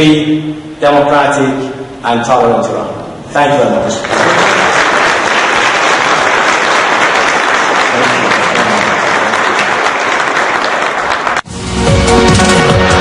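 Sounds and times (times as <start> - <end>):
audience applauding: 3.9 - 11.5
theme music: 11.4 - 13.0.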